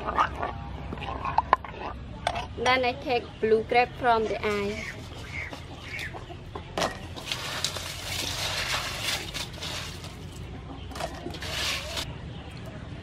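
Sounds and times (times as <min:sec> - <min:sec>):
ice rattling and crunching: 0:07.1 - 0:12.1.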